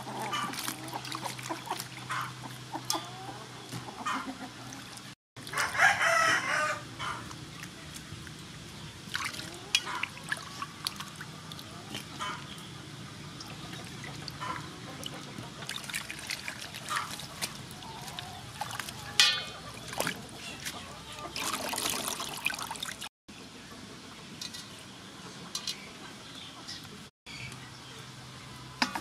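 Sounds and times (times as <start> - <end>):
water splashing in a steel bowl: 0.0 - 3.0, 7.1 - 12.6, 13.3 - 23.1
water trickling and dripping: 7.2 - 12.7, 13.3 - 23.1.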